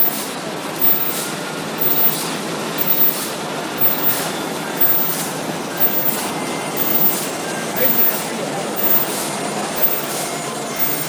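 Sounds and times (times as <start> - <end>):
milling machine hissing rhythmically: 0.0 - 11.0.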